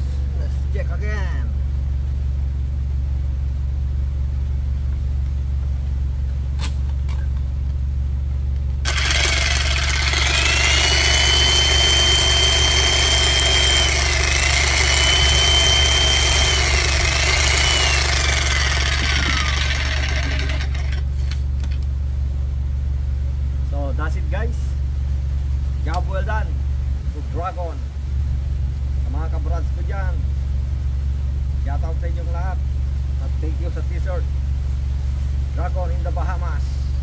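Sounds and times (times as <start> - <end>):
electric jackhammer motor whining: 8.8 - 21.4.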